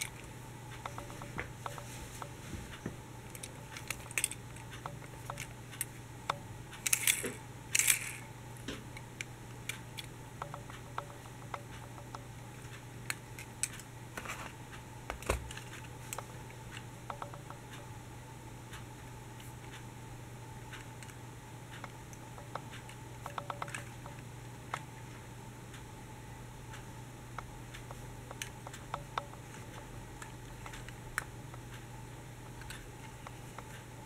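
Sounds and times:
steady low hum: 0.0 - 34.0
toy vehicles clicking and tapping: 3.3 - 5.9, 6.8 - 8.2, 23.3 - 23.9.

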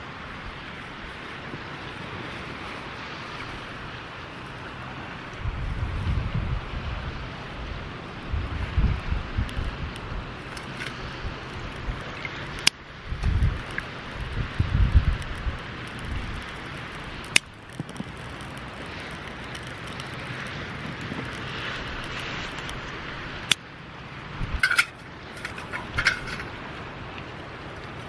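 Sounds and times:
wind: 0.0 - 28.0
dry twigs snapping: 9.4 - 23.6.

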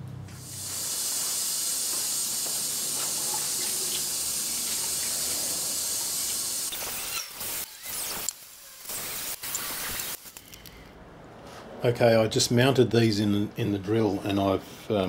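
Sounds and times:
tap water running into sink: 0.4 - 6.7
water splashing unevenly: 0.5 - 6.7.

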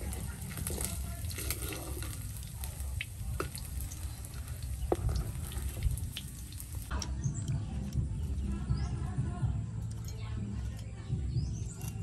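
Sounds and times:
metal ladle stirring: 0.0 - 6.4
beetles sizzling in hot oil: 0.0 - 7.0.

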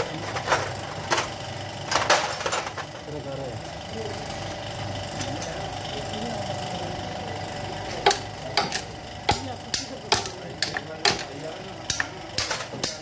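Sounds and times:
steady hum: 0.0 - 13.0
tools knocking on engine parts: 7.9 - 13.0.

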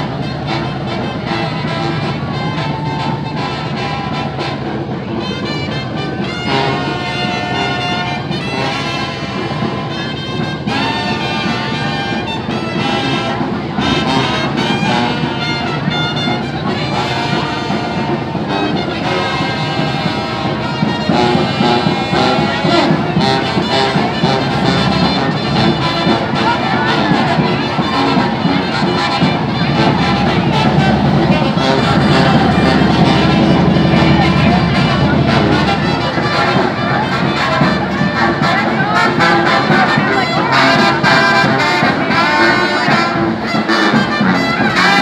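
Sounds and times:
marching brass band playing: 0.0 - 45.0
sousaphone bass: 20.8 - 37.3.

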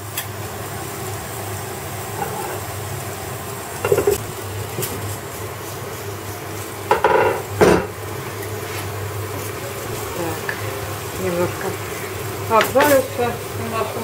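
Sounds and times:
meat sizzling in frying pan: 0.0 - 14.0
glass pan lid clattering: 3.9 - 4.2.

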